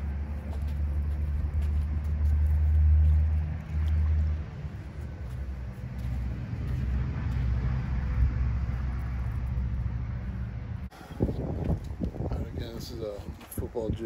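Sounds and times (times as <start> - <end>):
wind buffeting microphone: 3.6 - 14.0.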